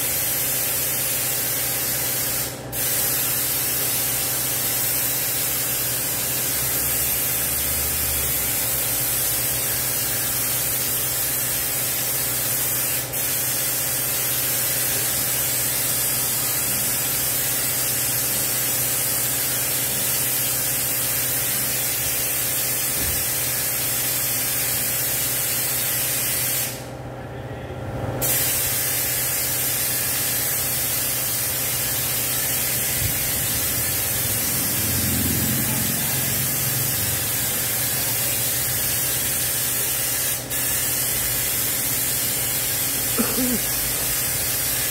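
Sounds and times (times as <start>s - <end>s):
pressure washer spraying water: 0.0s - 26.8s, 28.2s - 44.9s
steady low hum: 29.6s - 44.8s.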